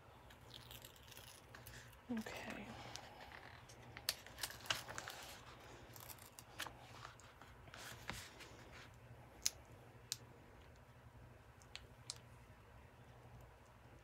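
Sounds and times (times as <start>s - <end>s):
paper crackling: 1.2s - 8.9s.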